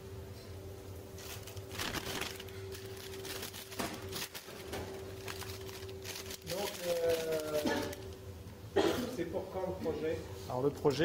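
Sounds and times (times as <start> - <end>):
steady hum: 0.0 - 11.0
paper wrapper rustling: 1.2 - 8.2.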